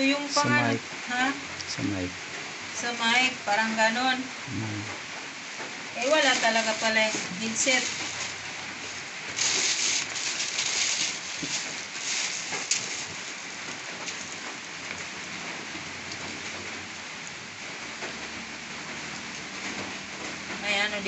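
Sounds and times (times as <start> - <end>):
plastic packaging crinkling: 6.0 - 14.4.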